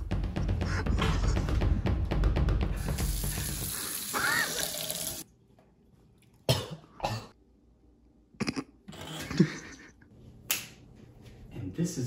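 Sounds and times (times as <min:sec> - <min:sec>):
faucet running into steel sink: 0:02.9 - 0:05.2.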